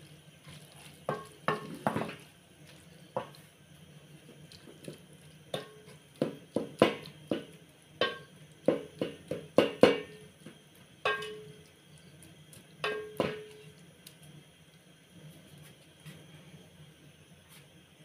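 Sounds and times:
wooden spoon knocking metal pot: 1.1s - 2.2s, 5.5s - 10.2s, 11.1s - 11.5s, 12.8s - 13.5s.

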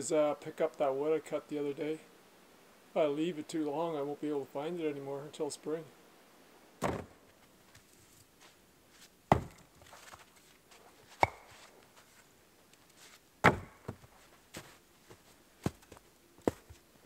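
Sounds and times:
logs knocking into plastic sled: 6.8s - 7.2s.

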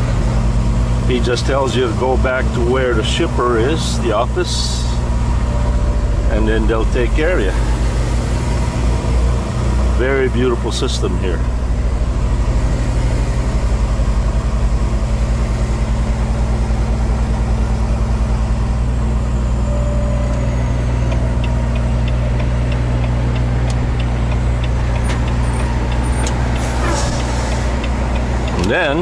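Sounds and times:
truck diesel engine running: 0.0s - 29.0s
light evenly spaced ticks: 21.1s - 28.7s.

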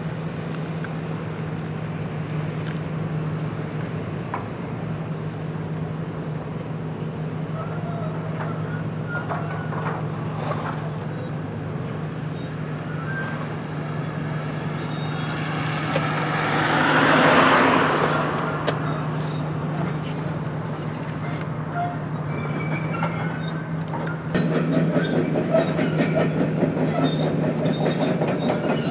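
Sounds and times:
high-pitched metallic squeals: 7.6s - 28.9s.

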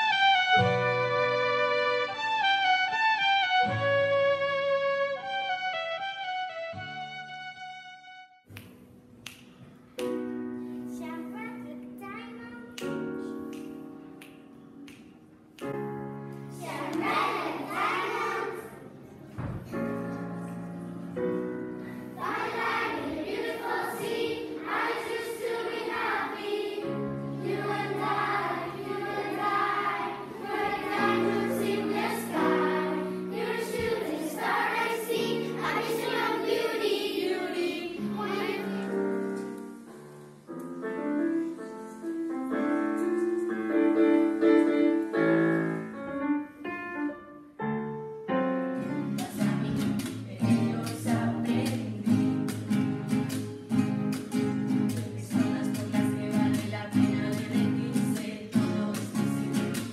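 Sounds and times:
children's choir singing: 16.4s - 20.2s, 21.3s - 39.9s, 48.8s - 59.9s
solo piano playing: 38.2s - 49.2s.

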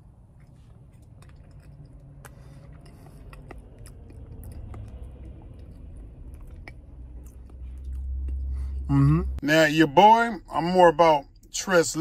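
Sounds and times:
low steady hum: 0.0s - 12.0s
mouth eating wet clicks: 0.8s - 8.4s.

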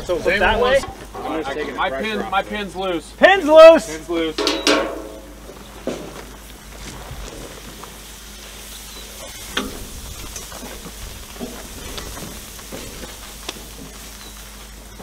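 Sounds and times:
fire sizzling and crackling: 0.0s - 15.0s
sharp knocks: 4.4s - 5.4s.

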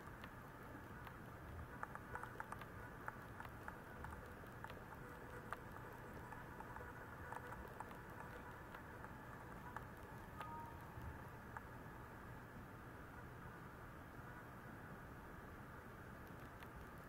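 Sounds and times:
faint room hiss: 0.0s - 17.0s
soft clicks: 1.0s - 11.7s, 16.2s - 17.0s.

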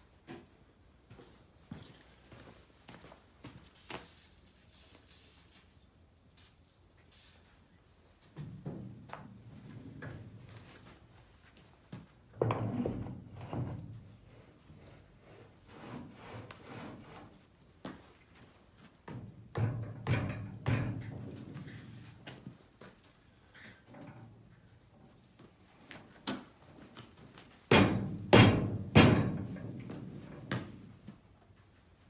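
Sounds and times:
tire handling knocks and scuffs: 25.9s - 31.2s.

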